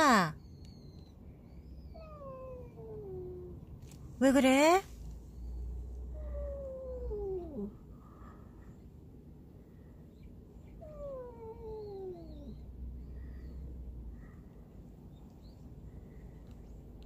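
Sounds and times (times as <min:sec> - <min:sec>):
cat moaning: 0:05.4 - 0:07.9, 0:10.6 - 0:13.6.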